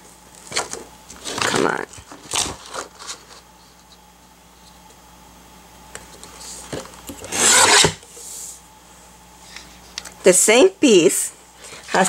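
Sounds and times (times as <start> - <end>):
paper trimmer blade rasping: 7.3 - 8.0.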